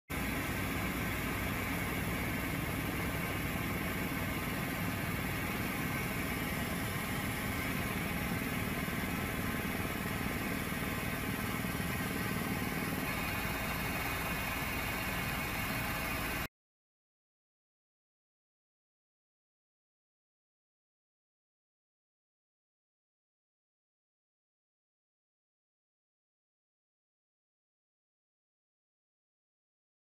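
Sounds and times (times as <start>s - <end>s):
helicopter engine and rotor: 0.1s - 16.5s.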